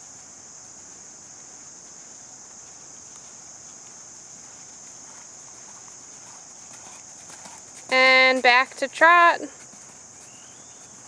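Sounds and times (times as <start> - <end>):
horse hoofbeats on sand: 0.0 - 11.0
insect chorus drone: 0.0 - 11.0.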